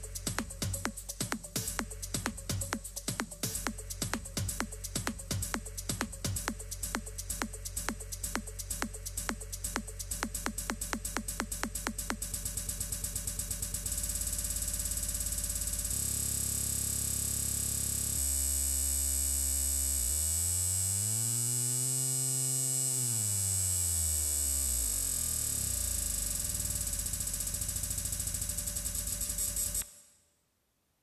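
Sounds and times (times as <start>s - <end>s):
electronic dance track: 0.0s - 15.4s.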